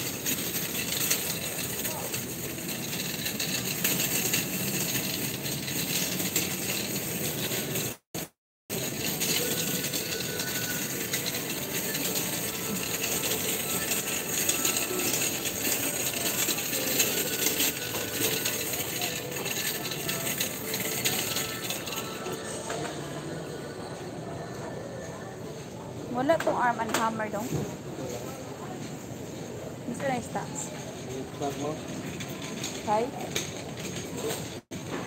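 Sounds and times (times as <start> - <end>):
small clinks and rattles: 0.0 - 8.1, 8.7 - 22.3
supermarket hubbub: 0.0 - 35.0.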